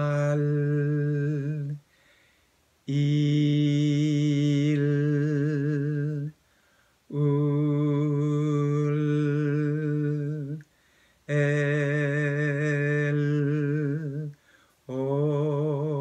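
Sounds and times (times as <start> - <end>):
man singing long vowels: 0.0 - 1.9, 2.8 - 6.4, 7.1 - 16.0
breaths: 1.8 - 2.7, 6.4 - 7.1, 10.6 - 11.3, 14.3 - 14.9.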